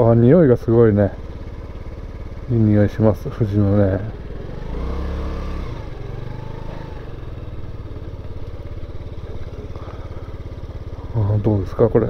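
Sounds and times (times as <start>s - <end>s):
scooter engine running: 0.0s - 12.0s.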